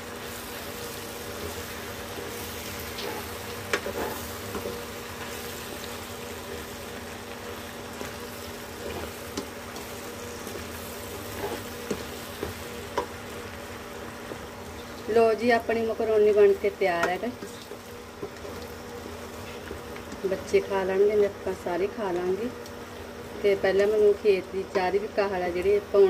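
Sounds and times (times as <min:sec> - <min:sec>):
electrical hum: 0:00.0 - 0:26.0
faint sizzle: 0:00.0 - 0:26.0
wooden spatula scraping pan: 0:02.6 - 0:04.8, 0:08.8 - 0:13.1.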